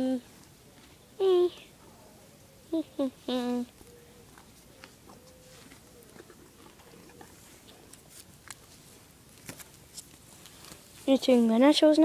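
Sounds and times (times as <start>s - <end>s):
pony chewing plants: 4.4s - 11.0s.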